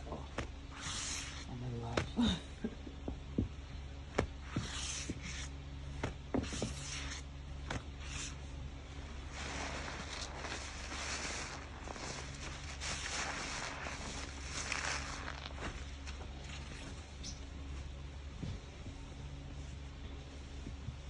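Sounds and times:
steady low hum: 0.0 - 21.0
soap suds crackling and squelching: 9.4 - 16.6.

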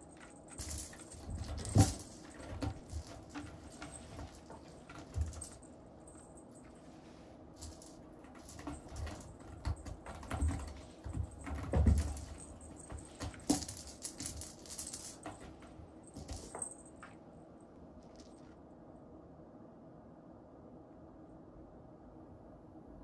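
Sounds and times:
cat scratching post: 0.0 - 16.4.

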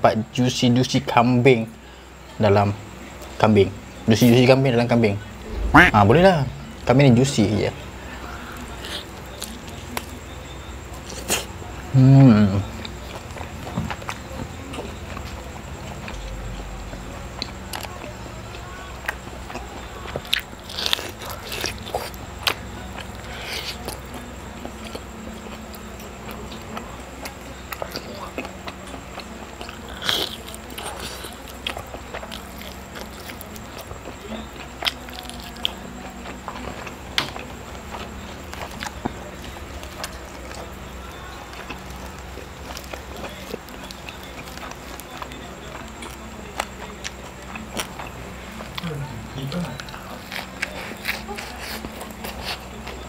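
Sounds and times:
chewing and biting meat: 19.0 - 53.0.

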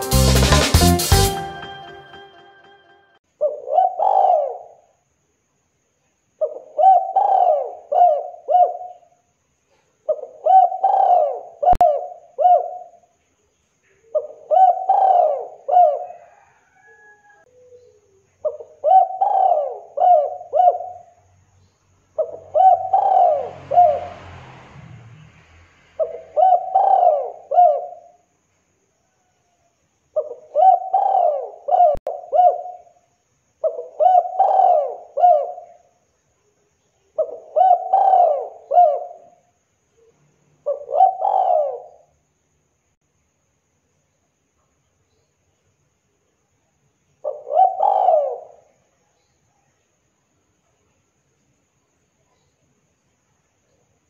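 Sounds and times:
dove cooing: 3.4 - 4.8, 6.4 - 9.1, 10.1 - 13.0, 14.1 - 21.1, 22.2 - 24.0, 26.0 - 28.2, 30.2 - 33.0, 33.6 - 35.8, 37.2 - 39.4, 40.6 - 42.1, 47.2 - 48.8.

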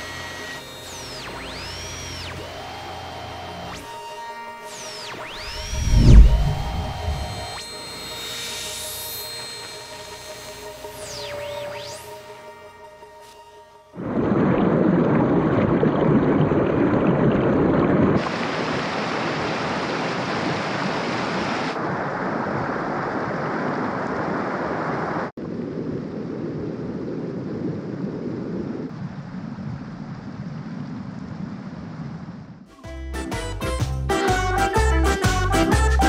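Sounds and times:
water rushing over stones: 14.0 - 23.1.

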